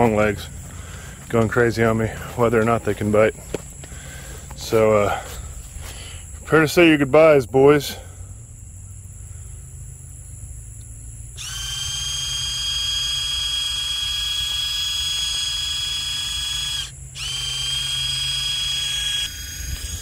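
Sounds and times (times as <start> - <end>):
electric sprayer pump whining: 11.4 - 20.0.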